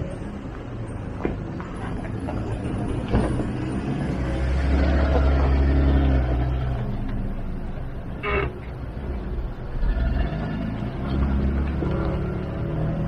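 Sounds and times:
off-road engine revving: 3.8s - 7.4s, 8.2s - 13.0s.

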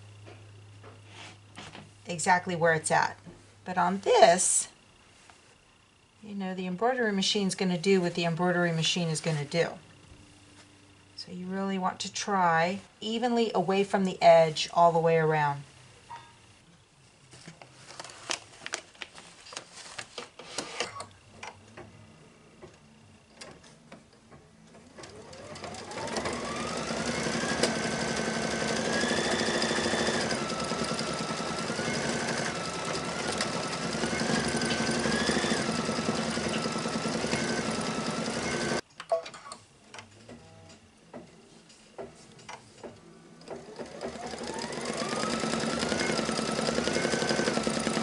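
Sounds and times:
embroidery machine whining: 25.0s - 38.8s, 43.6s - 48.0s.

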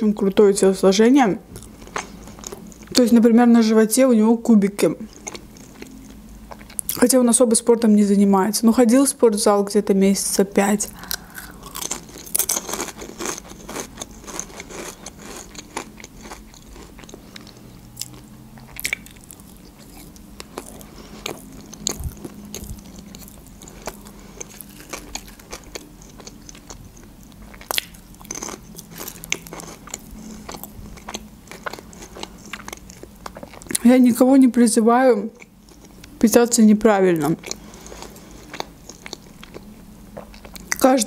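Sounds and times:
potato chips crunching: 10.9s - 33.9s.

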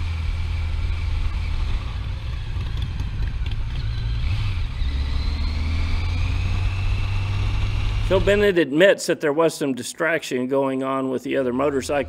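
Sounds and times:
faint rising whine: 0.0s - 8.5s
motorcycle engine drone: 0.0s - 8.6s.

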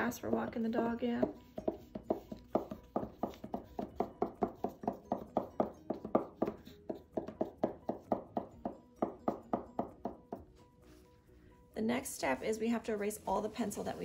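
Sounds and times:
marker tips tapping on paper: 1.2s - 10.5s.

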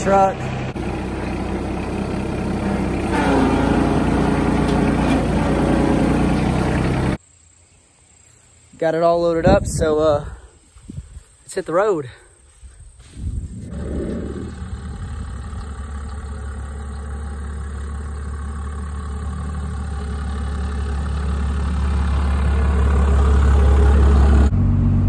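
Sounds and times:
diesel truck engine humming: 0.0s - 7.2s, 13.6s - 25.0s
engine heard from inside cab: 0.0s - 7.2s, 13.7s - 25.0s.

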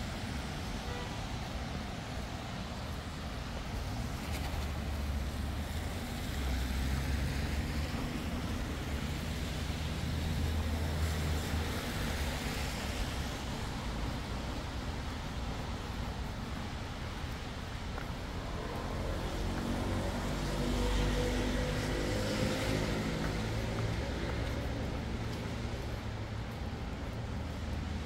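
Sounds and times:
rain on a street: 0.0s - 28.0s.

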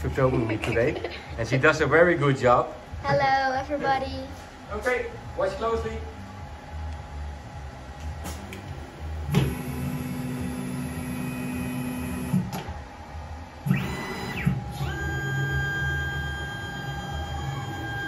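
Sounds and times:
router motors whining: 13.6s - 18.0s.

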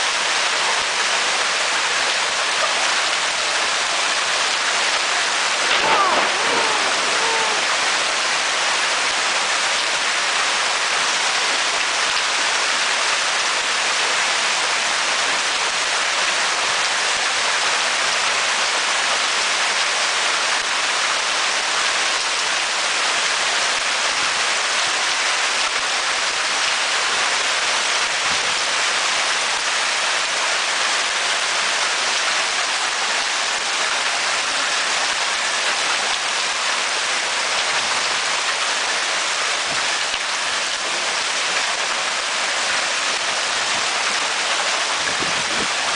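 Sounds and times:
hail pelting down: 1.8s - 12.7s.

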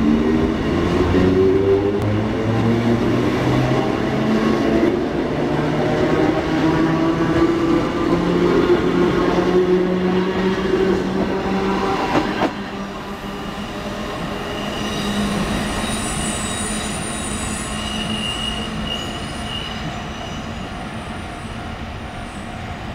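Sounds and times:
train wheels squealing: 13.1s - 22.9s.

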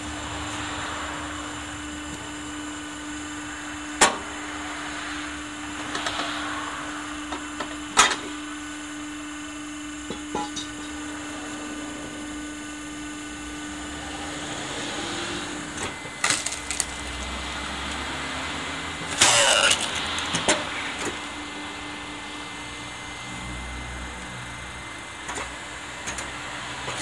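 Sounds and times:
log splitter humming: 7.0s - 27.0s
wood cracking and splitting: 15.9s - 18.2s, 19.0s - 20.5s.

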